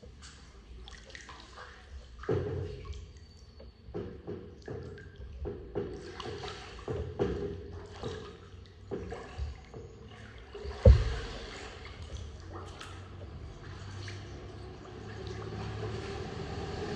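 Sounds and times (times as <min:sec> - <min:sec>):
water dripping and splashing: 0:00.0 - 0:16.9
kayak paddle strokes: 0:05.4 - 0:16.9
loud sharp thump: 0:10.8 - 0:11.4.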